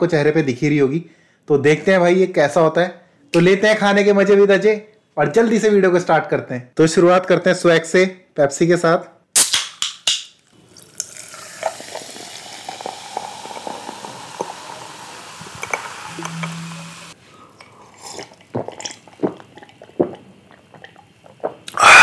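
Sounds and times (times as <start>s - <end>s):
soda fizzing into glass: 10.4s - 17.2s.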